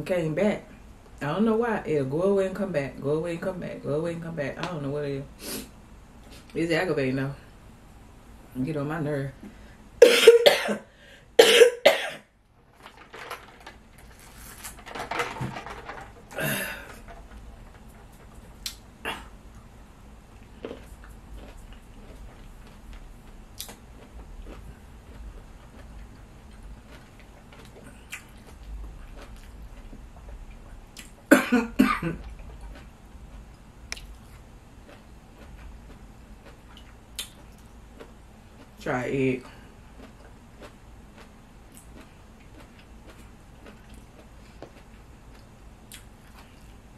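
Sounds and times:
woman coughing: 10.0s - 12.3s, 16.4s - 16.9s, 31.3s - 32.2s
chewing: 20.4s - 31.2s, 32.2s - 38.8s, 39.9s - 46.8s.

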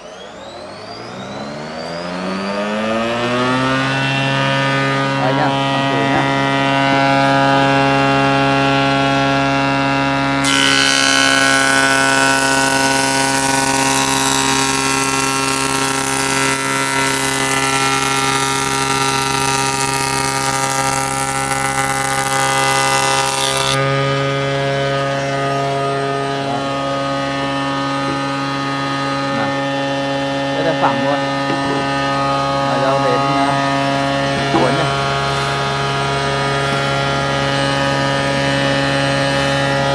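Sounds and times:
jointer machine humming: 0.0s - 39.9s
planer knives cutting board: 10.4s - 24.6s, 30.7s - 32.0s, 34.2s - 35.2s.

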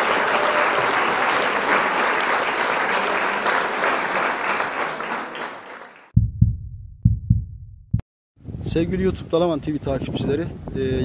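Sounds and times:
short low thumps: 6.2s - 8.6s.

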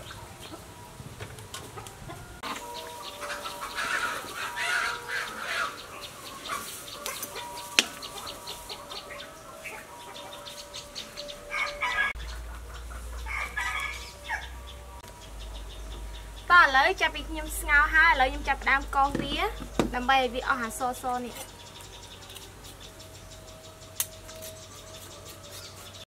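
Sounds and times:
chickens clucking: 0.0s - 22.9s
rooster crowing: 1.6s - 15.0s.

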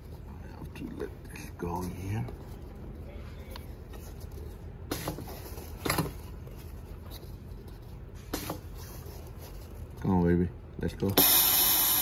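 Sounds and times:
steady low hum: 0.0s - 12.0s
fabric rustling and scraping: 1.7s - 10.1s.

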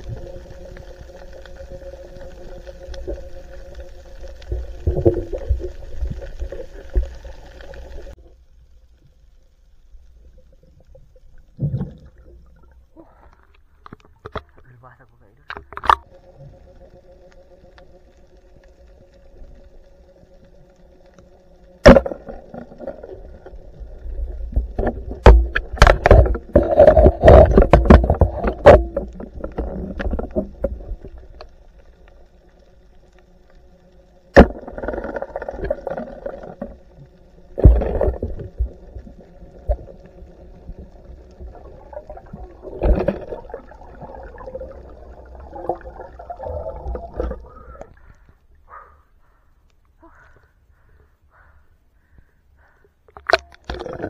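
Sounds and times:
underwater clattering: 15.4s - 16.0s, 21.8s - 31.5s, 34.3s - 36.8s, 37.5s - 48.0s, 53.1s - 54.0s.

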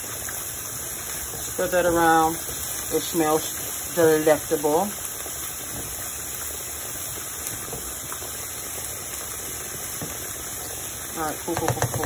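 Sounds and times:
vegetables sizzling in oil: 0.0s - 12.0s
spoon scraping a pan: 11.5s - 12.0s.

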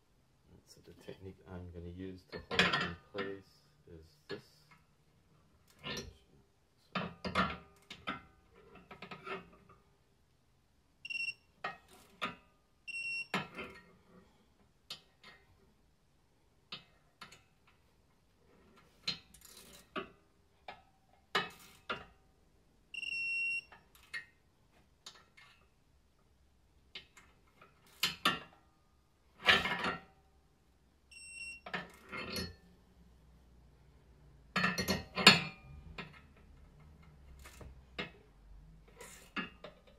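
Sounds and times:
metal clicks and clanks: 2.3s - 3.4s, 5.6s - 6.3s, 18.6s - 22.2s, 29.3s - 30.2s, 34.5s - 38.3s, 38.9s - 39.9s
high beeps: 11.1s - 11.4s, 31.1s - 31.6s.

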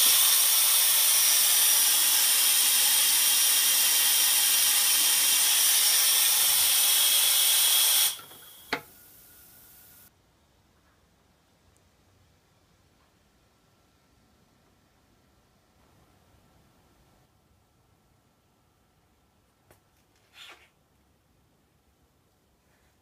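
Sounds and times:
gas turbine rushing and whining: 0.0s - 10.1s.

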